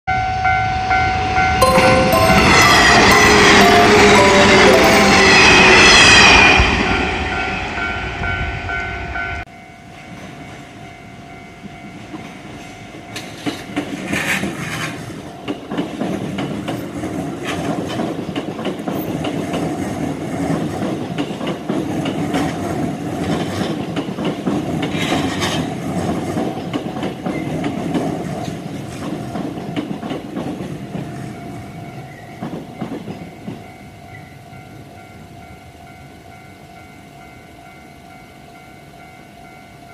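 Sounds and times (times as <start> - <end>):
level crossing warning bell ringing: 0.1 - 13.6
train passing close by: 0.1 - 39.9
electric train rumbling and clacking: 0.2 - 39.9.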